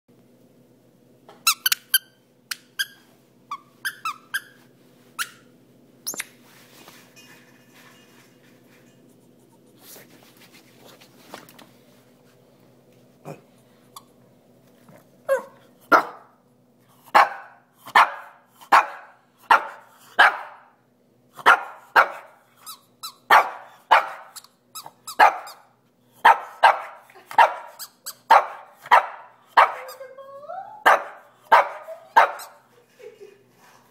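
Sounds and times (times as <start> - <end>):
dog barking: 15.3 - 16.4, 17.1 - 20.7, 21.4 - 22.4, 23.3 - 24.4, 25.1 - 30.0, 30.8 - 32.6
small dog yipping: 30.8 - 32.6.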